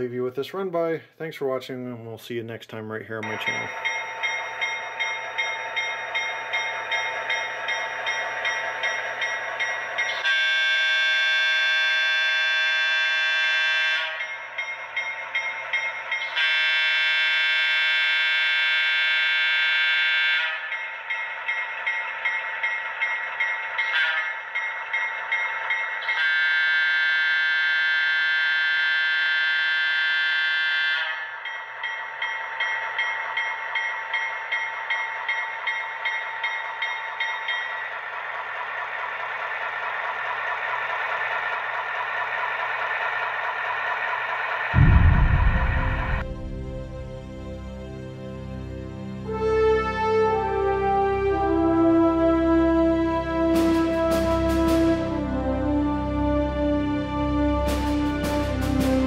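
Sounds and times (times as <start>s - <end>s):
locomotive air horn blasts: 10.2s - 14.3s, 16.3s - 20.7s, 26.1s - 31.2s, 49.3s - 59.0s.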